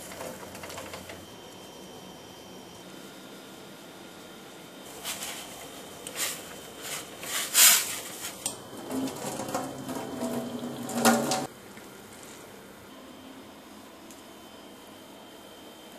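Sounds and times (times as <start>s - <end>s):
water pouring into sink: 8.6s - 11.5s
saucepan clattering: 8.8s - 11.5s.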